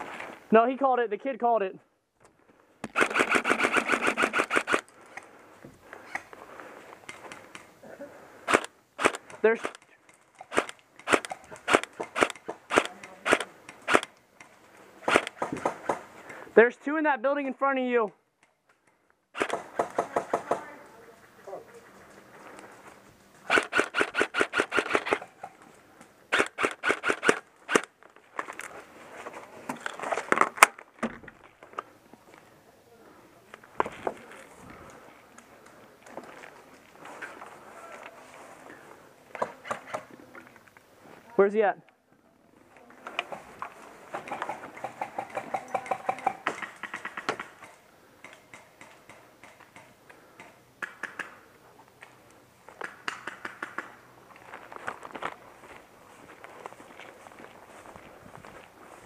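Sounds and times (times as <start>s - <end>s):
airsoft rifle full-auto burst: 2.9s - 4.8s, 10.5s - 14.0s, 15.0s - 15.4s, 19.3s - 19.8s, 23.4s - 25.2s, 26.3s - 27.9s.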